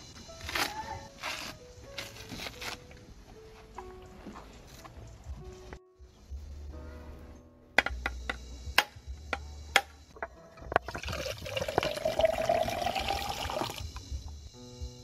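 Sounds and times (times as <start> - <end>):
coconut water pouring into cup: 10.8 - 13.8.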